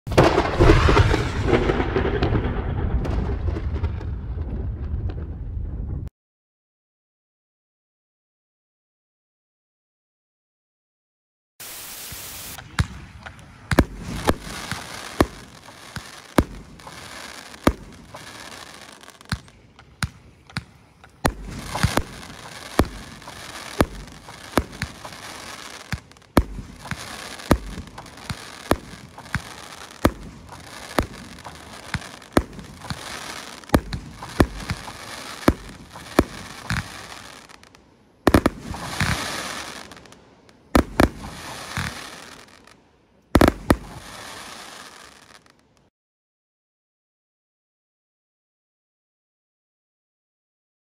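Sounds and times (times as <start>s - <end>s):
fireworks hiss and crackle: 0.1s - 5.3s, 11.6s - 45.8s
fireworks shots firing: 0.1s - 6.0s, 11.6s - 45.5s.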